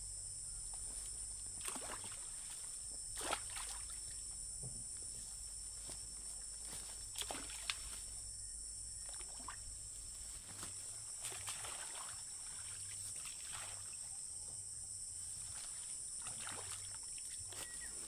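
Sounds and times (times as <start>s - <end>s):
high insect drone: 0.0s - 18.0s
small splashes: 1.6s - 4.3s, 7.1s - 8.1s, 9.0s - 9.8s, 10.6s - 14.1s, 15.4s - 17.9s.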